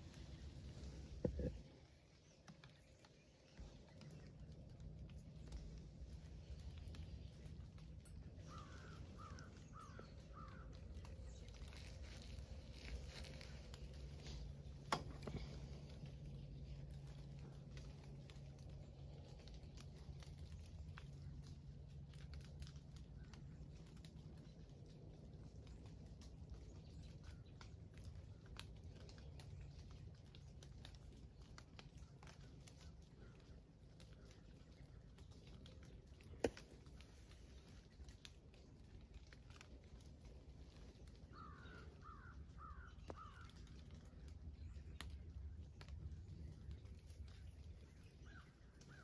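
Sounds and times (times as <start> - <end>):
faint rustling: 0.0 - 21.4
low steady rumble: 0.0 - 49.0
faint ticks and taps: 0.1 - 49.0
bird calling: 8.0 - 16.0, 40.8 - 44.1, 47.3 - 49.0.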